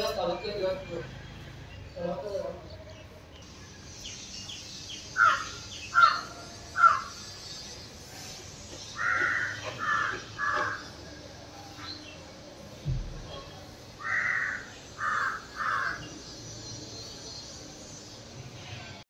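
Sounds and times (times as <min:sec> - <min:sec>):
crows cawing: 0:05.2 - 0:07.2, 0:09.0 - 0:11.0, 0:14.0 - 0:16.1.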